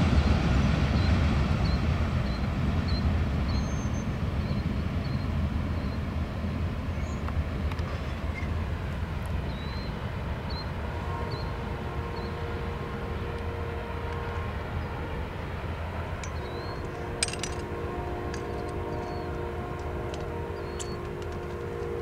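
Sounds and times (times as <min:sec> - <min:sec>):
train horn blasts: 0:10.5 - 0:22.0.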